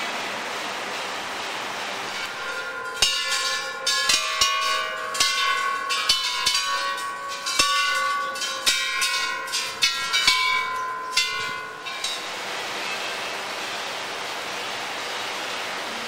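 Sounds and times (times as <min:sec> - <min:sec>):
metal temple bells ringing: 0:02.1 - 0:13.5.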